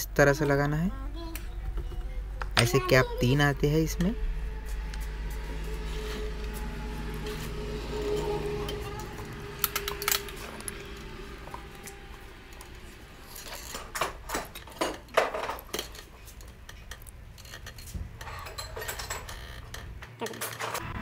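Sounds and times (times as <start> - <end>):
metal bearing shells clicking: 9.4 - 11.0.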